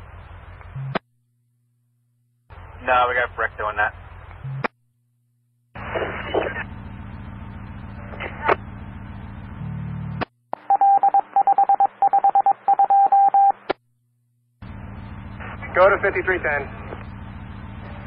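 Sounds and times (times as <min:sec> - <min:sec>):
radio hum: 0:02.5 - 0:04.7, 0:05.8 - 0:10.8, 0:14.6 - 0:18.0
garbled radio speech: 0:02.8 - 0:04.0, 0:05.8 - 0:06.8, 0:15.4 - 0:17.0
rapid touch-tone beeps: 0:10.6 - 0:13.6.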